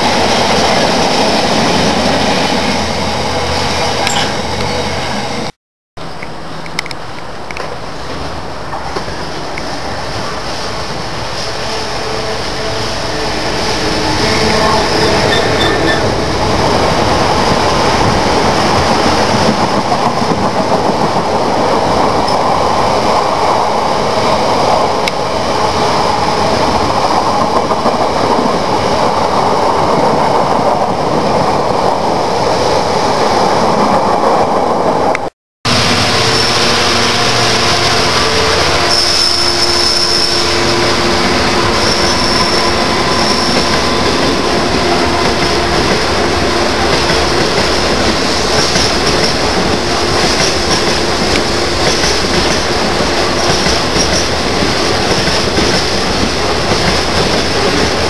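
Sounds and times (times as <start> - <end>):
train wheels rumbling on rail: 0.0 - 58.0
high-pitched wheel squeal: 12.8 - 16.2, 38.2 - 40.9, 41.6 - 44.2.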